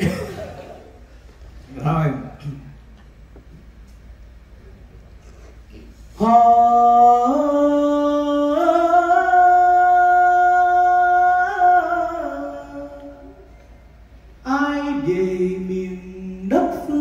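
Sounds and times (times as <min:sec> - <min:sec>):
man singing into a microphone: 0:06.2 - 0:13.4, 0:14.4 - 0:17.0.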